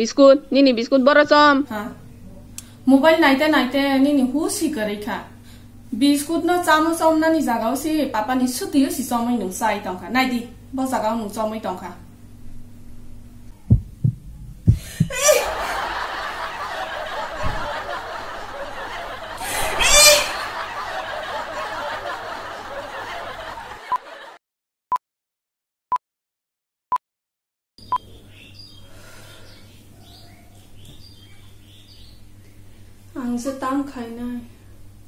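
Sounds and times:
sharp thumps: 13.6 - 15.2
canned audience laughter: 15.2 - 24.4.

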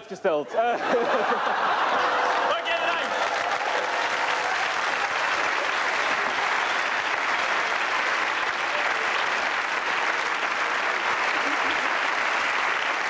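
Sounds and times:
audience laughter: 0.5 - 7.2, 11.0 - 12.5
audience applauding: 0.9 - 13.0.

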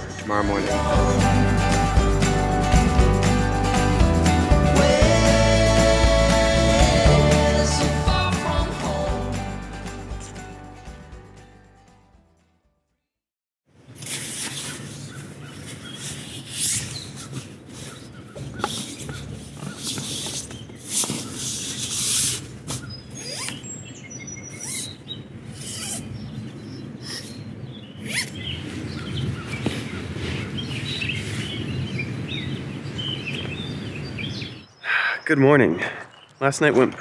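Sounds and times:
birds chirping: 22.6 - 37.0.

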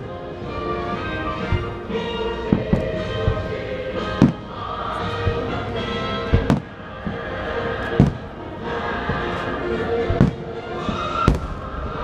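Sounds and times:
fireworks show music: 0.0 - 12.0
fireworks booming: 1.3 - 8.4, 10.0 - 12.0.

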